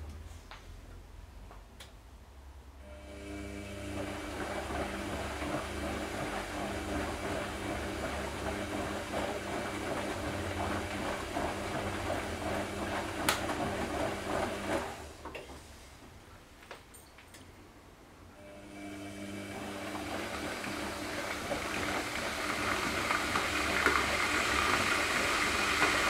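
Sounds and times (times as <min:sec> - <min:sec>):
washing machine running: 0:02.8 - 0:15.3, 0:18.4 - 0:26.0.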